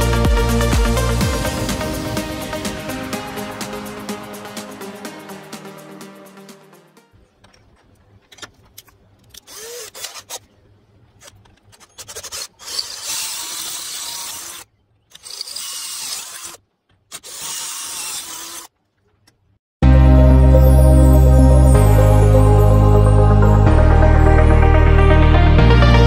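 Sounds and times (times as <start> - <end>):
power drill drilling metal: 12.0 - 18.7.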